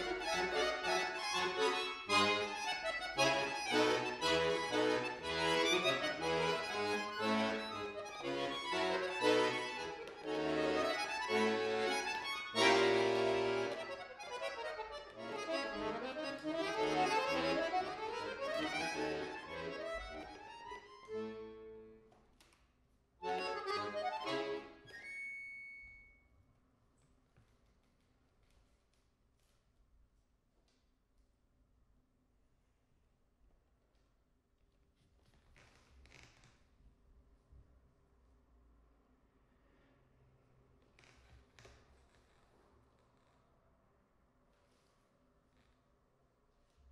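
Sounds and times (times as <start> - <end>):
button accordion playing: 0.0 - 22.0, 23.2 - 25.1.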